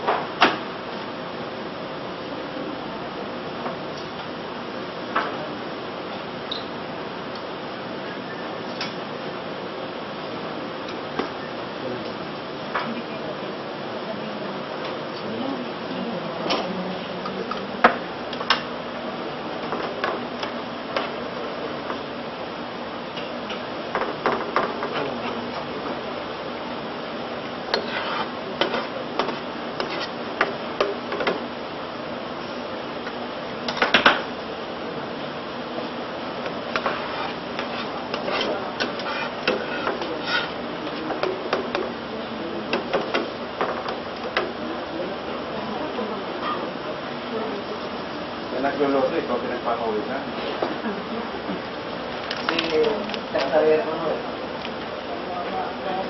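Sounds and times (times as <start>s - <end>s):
metal spatula scraping a pan: 27.7s - 28.9s, 36.8s - 40.6s.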